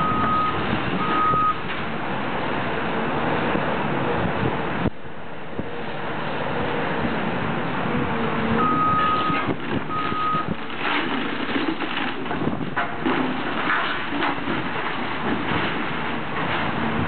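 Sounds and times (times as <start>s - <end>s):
excavator running: 0.0s - 17.0s
backup alarm beeping: 8.6s - 10.5s
crunching of steel and rubble: 8.9s - 17.0s.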